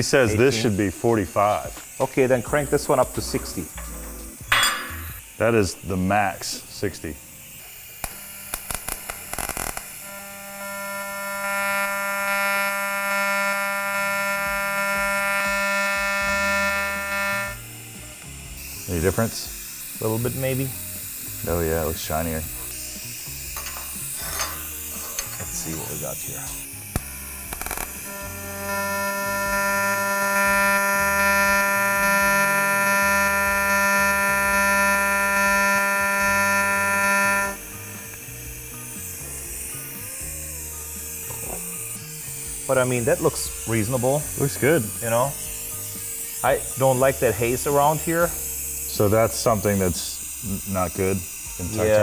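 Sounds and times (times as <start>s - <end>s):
welding arc striking crackle: 0.0s - 39.8s
welding arc buzzing: 0.0s - 52.0s.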